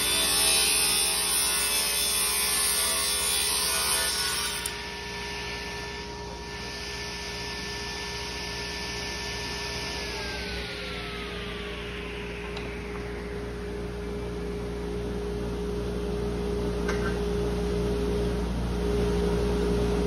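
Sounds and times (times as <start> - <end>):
table saw cutting wood: 0.0 - 15.2
table saw running without load: 0.0 - 16.1.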